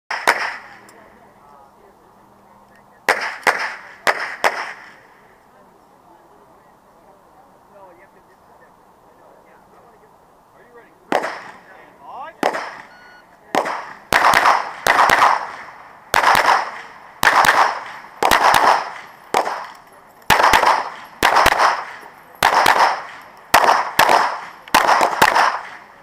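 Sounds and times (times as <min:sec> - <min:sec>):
pistol shots: 0:00.1 - 0:00.8, 0:03.1 - 0:05.0, 0:11.1 - 0:11.6, 0:12.4 - 0:25.9.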